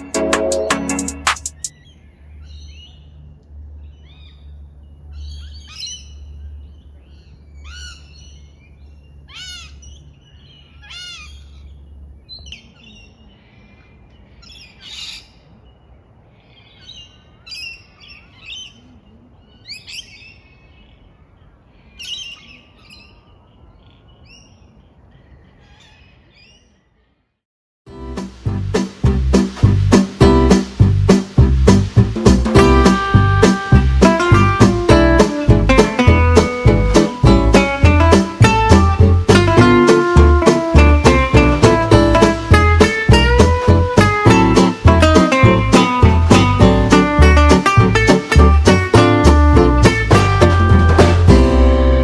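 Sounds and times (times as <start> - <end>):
birds chirping and whistling: 0.6 - 3.2, 3.8 - 15.8, 21.8 - 26.8, 34.2 - 47.4
low rumble: 28.0 - 48.6.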